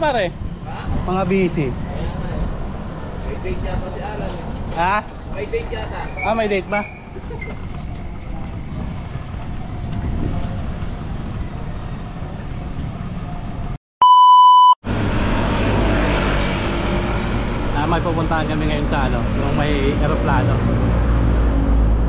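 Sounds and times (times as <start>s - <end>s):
bicycle road noise: 0.0s - 13.8s, 14.9s - 22.0s
wind rumble on microphone: 0.0s - 13.8s
electronic beep: 14.0s - 14.8s.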